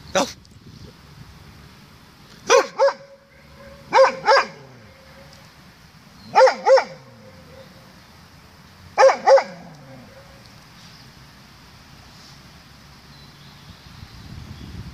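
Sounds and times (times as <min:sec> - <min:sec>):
dog barking in double barks: 0:02.5 - 0:05.3, 0:06.3 - 0:07.8, 0:09.0 - 0:10.4
echo of barking: 0:02.5 - 0:05.4, 0:06.3 - 0:07.9, 0:09.0 - 0:10.4.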